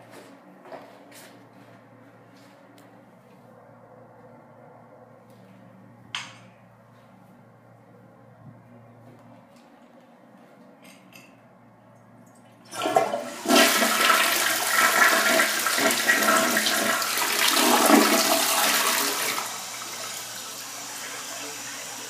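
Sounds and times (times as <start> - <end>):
toilet flushing: 12.4 - 22.0
toilet tank refilling hiss: 12.7 - 22.0.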